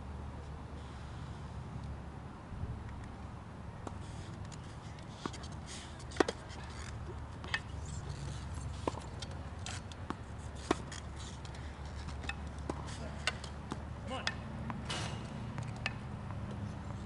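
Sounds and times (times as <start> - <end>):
tennis balls hit and bouncing: 3.8 - 16.9.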